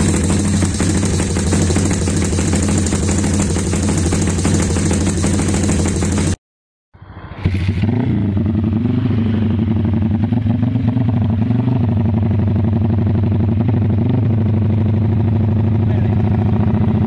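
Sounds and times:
motorcycle engine idling: 0:00.0 - 0:06.4, 0:09.6 - 0:17.0
motorcycle kick-start: 0:00.0 - 0:06.4.

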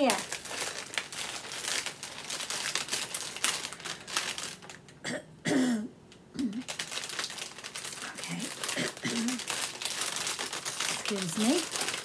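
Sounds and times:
plastic packaging crinkling: 0:00.0 - 0:05.0, 0:06.4 - 0:12.0
cough-like vocal sound: 0:05.0 - 0:06.5, 0:08.8 - 0:09.4.

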